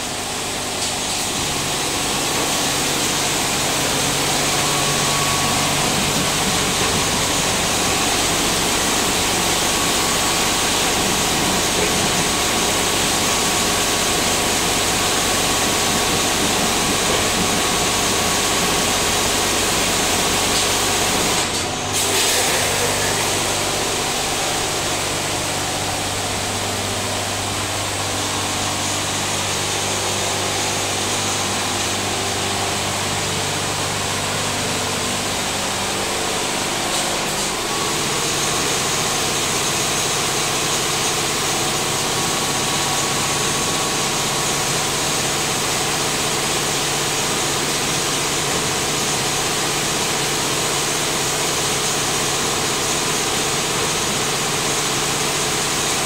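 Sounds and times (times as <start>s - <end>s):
pump and motor hum: 0.0s - 56.0s
high-pressure water spray: 0.8s - 26.6s.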